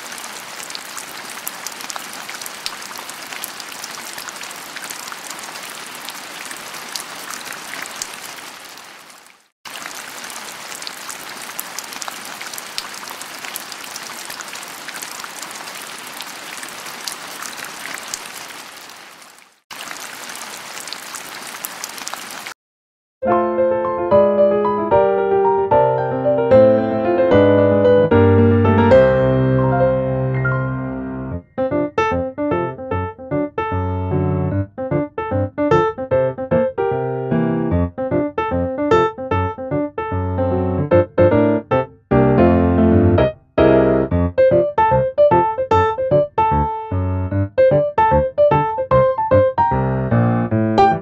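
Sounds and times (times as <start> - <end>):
rain falling on leaves: 0.0 - 22.6.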